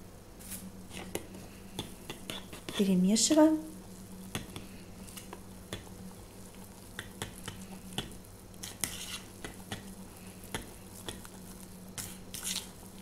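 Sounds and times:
utensil tapping and scraping bowl: 0:00.9 - 0:03.0, 0:04.3 - 0:09.9, 0:10.5 - 0:11.4.

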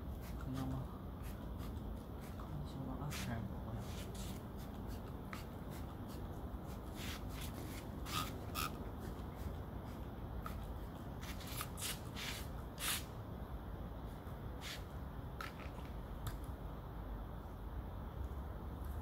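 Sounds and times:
brush swishing through dog fur: 0:00.1 - 0:08.4, 0:09.0 - 0:13.0.

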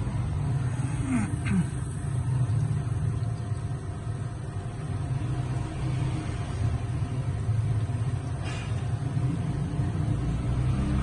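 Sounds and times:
espresso machine pump humming: 0:00.0 - 0:11.0
water pouring into drip tray: 0:01.8 - 0:08.4.

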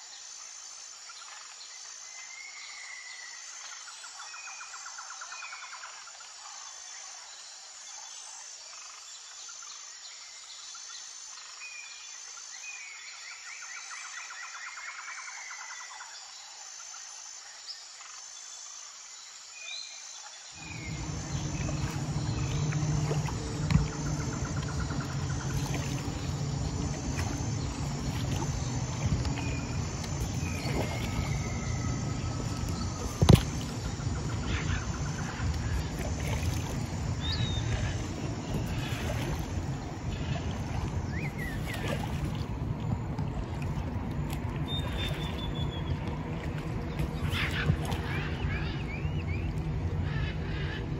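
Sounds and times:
insect trill: 0:20.5 - 0:46.0
birds chirping: 0:20.6 - 0:50.9
low rumble with hum: 0:20.6 - 0:50.9.

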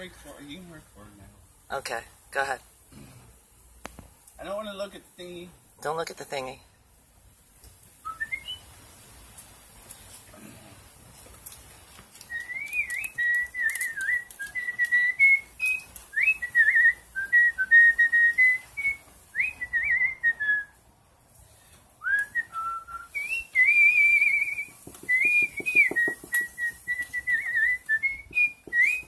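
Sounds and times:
man whistling a tune: 0:08.0 - 0:08.7, 0:12.3 - 0:20.8, 0:22.0 - 0:29.0.

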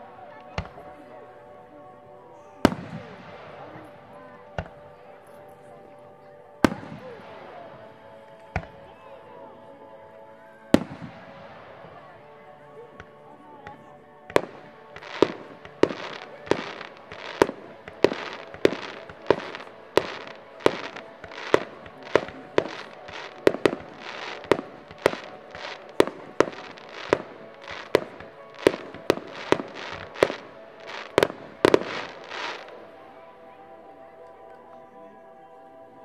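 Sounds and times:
fireworks bangs with crackle: 0:14.3 - 0:32.7.

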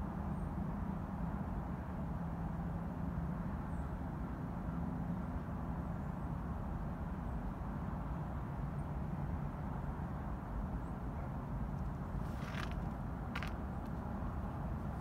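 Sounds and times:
vehicle engine rumbling: 0:11.8 - 0:15.0.

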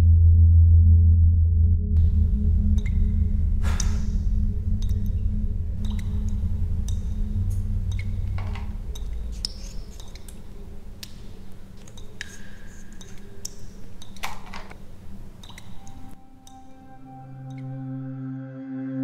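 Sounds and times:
low drone: 0:00.0 - 0:11.7, 0:15.8 - 0:19.0.

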